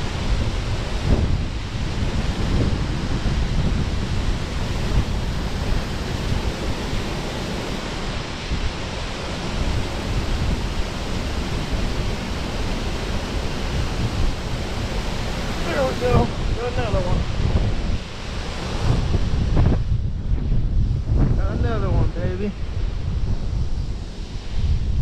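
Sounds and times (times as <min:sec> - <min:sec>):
water rushing through spillway: 0:00.0 - 0:19.7
wind buffeting microphone: 0:00.0 - 0:25.0.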